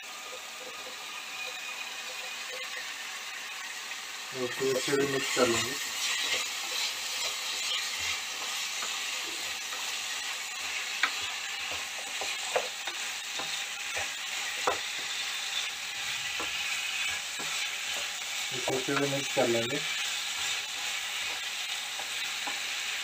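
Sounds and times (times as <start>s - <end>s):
vegetables sizzling in a pan: 0.0s - 23.0s
spatula scraping and tapping pan: 4.6s - 23.0s.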